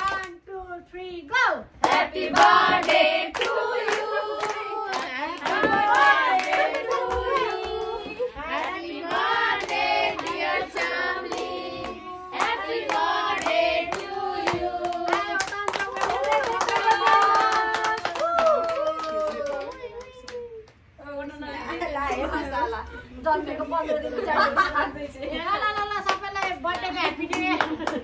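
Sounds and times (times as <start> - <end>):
people clapping: 0.0 - 0.4, 1.8 - 20.8, 25.6 - 28.0
group singing: 1.8 - 18.0.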